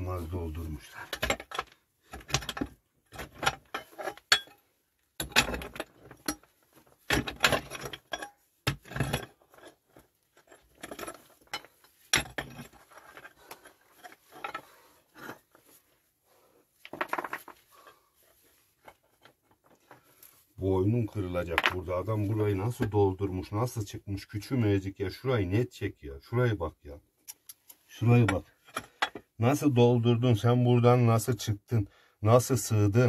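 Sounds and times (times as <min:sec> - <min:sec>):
loose stones clinking: 0:01.0 - 0:15.7, 0:16.8 - 0:18.0.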